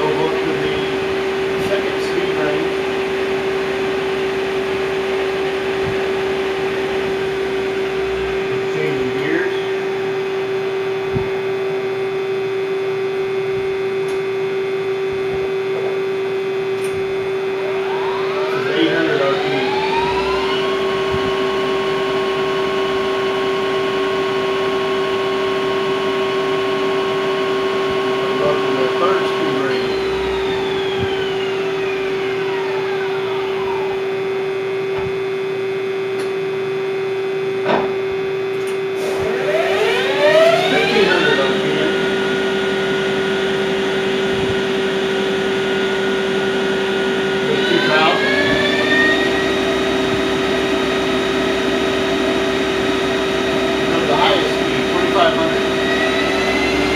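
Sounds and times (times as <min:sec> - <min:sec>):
lathe humming and whining: 0:00.0 - 0:56.9
low thump: 0:11.1 - 0:11.4, 0:34.9 - 0:35.3
click: 0:14.0 - 0:14.2, 0:38.6 - 0:38.8.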